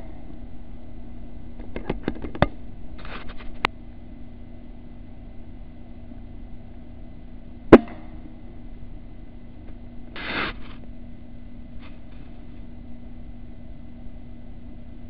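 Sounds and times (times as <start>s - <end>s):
faint steady hum: 0.0s - 15.0s
brief rustle: 3.0s - 3.7s.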